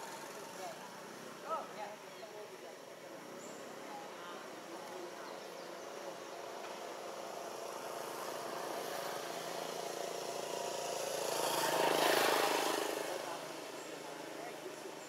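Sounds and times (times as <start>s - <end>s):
vehicle engine running: 0.0s - 1.4s.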